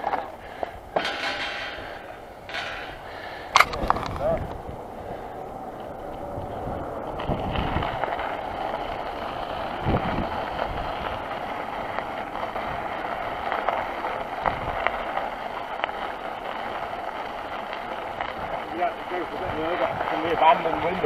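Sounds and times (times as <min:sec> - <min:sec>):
bicycle tyres rolling on gravel: 0:00.0 - 0:21.0
bike knocks and rattles: 0:00.9 - 0:04.4.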